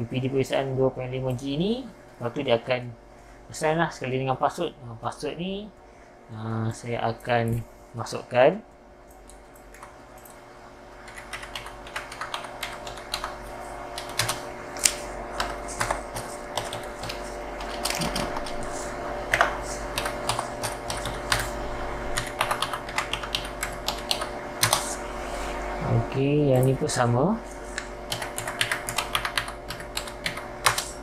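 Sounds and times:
keyboard typing: 9.2s - 10.4s, 11.0s - 21.6s, 22.2s - 25.0s, 27.7s - 31.0s.

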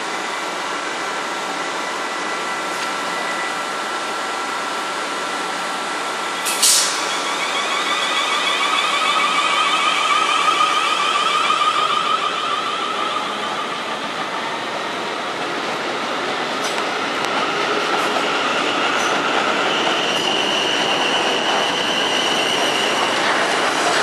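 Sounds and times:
electric train rumbling: 0.0s - 24.0s
train motor whine: 6.0s - 15.5s
short sharp hiss: 6.4s - 7.1s.

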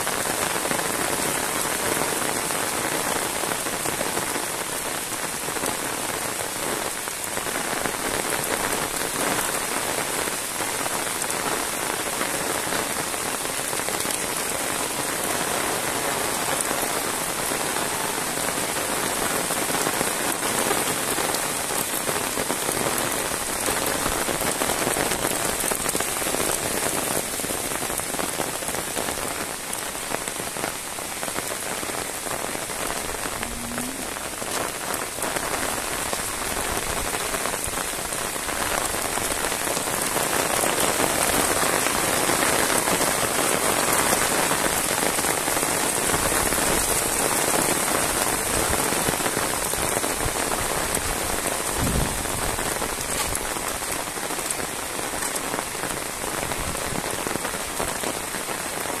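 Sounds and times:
heavy rain on road and leaves: 0.0s - 59.0s.

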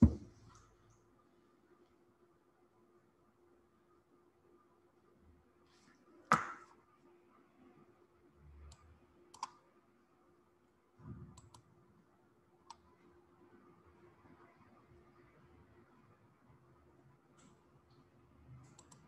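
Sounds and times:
knocks on a desk: 0.0s - 0.3s
faint steady hum: 0.0s - 19.0s
computer mouse clicks: 8.6s - 9.6s, 11.4s - 11.7s, 12.6s - 12.8s, 18.6s - 19.0s.

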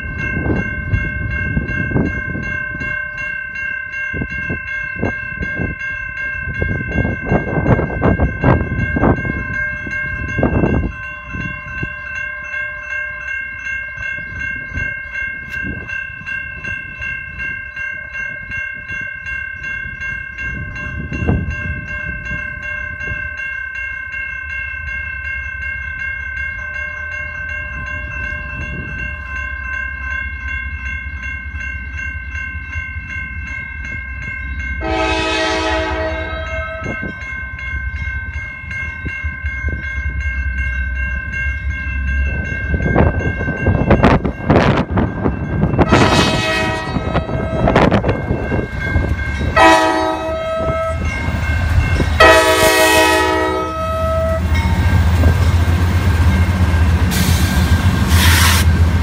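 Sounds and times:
wind buffeting microphone: 0.0s - 3.4s, 4.1s - 12.1s, 13.9s - 23.4s, 27.7s - 29.3s, 41.2s - 58.1s
crossing warning bell ringing: 0.0s - 59.0s
low rumble of freight train: 0.0s - 59.0s.

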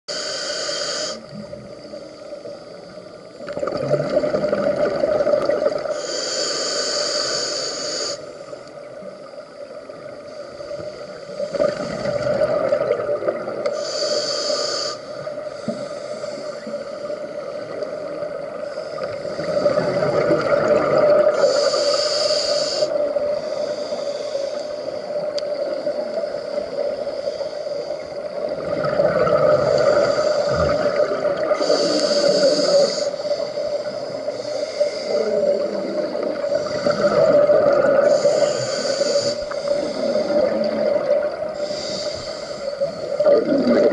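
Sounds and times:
hissing regulator inhale: 0.1s - 3.5s, 5.8s - 9.4s, 13.6s - 20.2s, 21.2s - 43.9s
gurgling exhaled bubbles: 3.4s - 6.0s, 11.4s - 13.6s, 19.0s - 21.7s, 28.4s - 33.1s, 35.1s - 42.0s, 43.1s - 43.9s.

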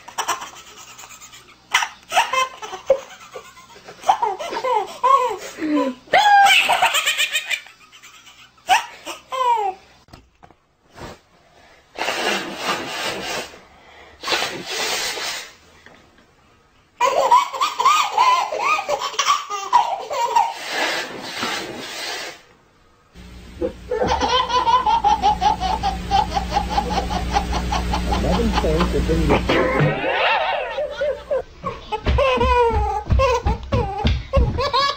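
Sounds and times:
baby laughing: 0.0s - 9.8s, 17.0s - 20.8s, 23.6s - 34.9s.

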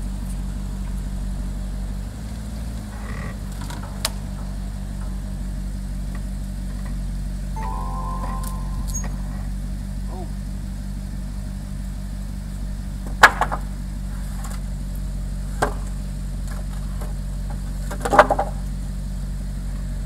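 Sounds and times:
brief high steady tone: 7.6s - 9.6s.

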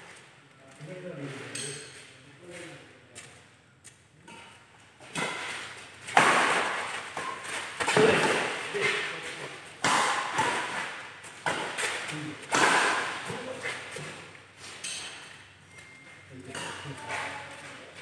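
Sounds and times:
racket hits echoing in hall: 4.4s - 14.3s.

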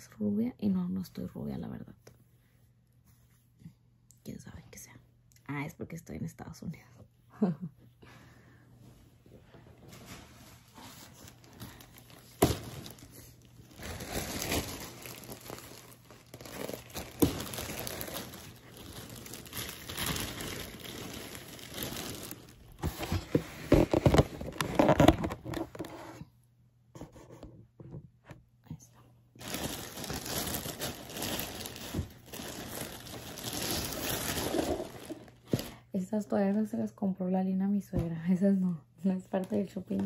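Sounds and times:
shopping bags rustling: 9.8s - 25.0s, 29.4s - 35.8s.

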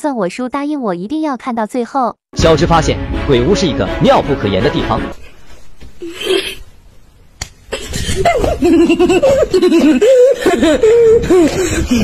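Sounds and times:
person laughing loudly: 7.7s - 12.0s.

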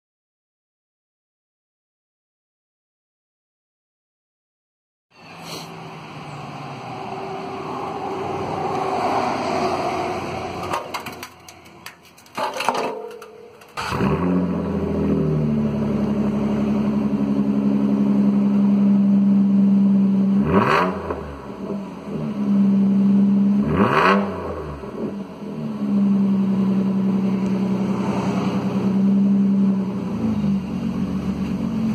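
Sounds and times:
engine revving: 5.2s - 11.3s, 13.8s - 31.9s
clattering: 10.6s - 13.9s
car exhaust idling loudly: 13.8s - 20.4s, 25.2s - 31.9s.

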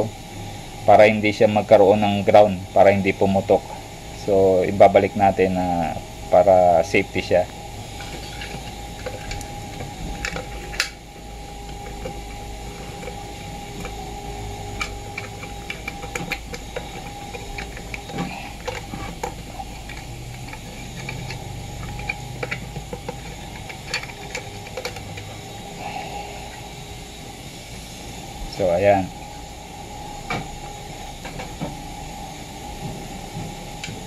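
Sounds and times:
steady low hum: 0.0s - 34.0s
small clicks and knocks: 14.7s - 25.4s.

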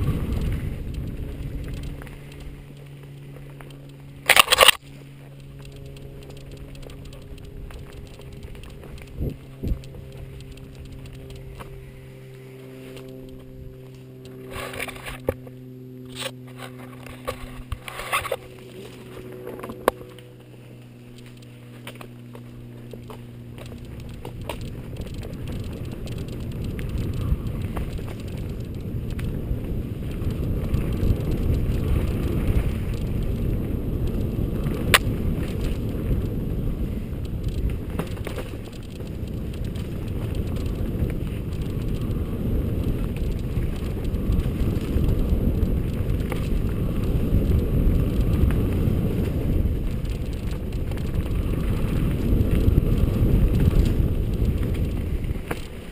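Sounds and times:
wind on microphone: 0.0s - 2.9s, 5.6s - 20.2s, 22.6s - 55.9s
bike rattling over bumps: 0.0s - 55.9s
bike tyres on dirt trail: 0.0s - 55.9s
sharp click: 4.2s - 4.8s.

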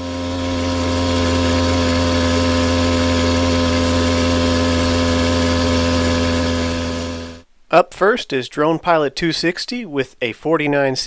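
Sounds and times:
small motorbike engine cruising: 0.0s - 7.4s.

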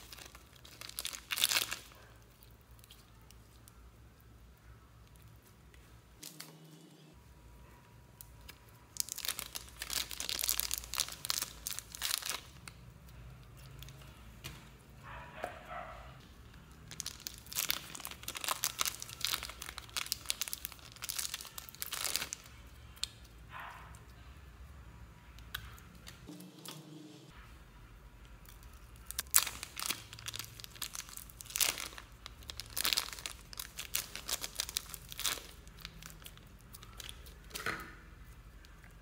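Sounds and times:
slime crackling and popping: 0.0s - 3.8s, 8.2s - 14.0s, 16.6s - 23.4s, 28.3s - 39.0s
slime squishing: 0.0s - 6.7s, 16.5s - 24.2s, 28.2s - 39.0s.

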